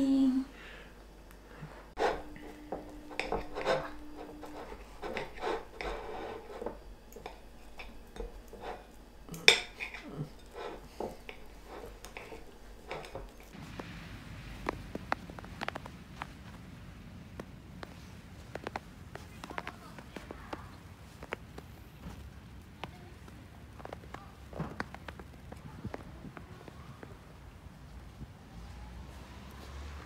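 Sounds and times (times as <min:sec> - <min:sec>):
soft outdoor hiss: 0:00.0 - 0:30.0
cutlery clinking on a plate: 0:02.0 - 0:13.6
footsteps on snow: 0:14.4 - 0:27.0.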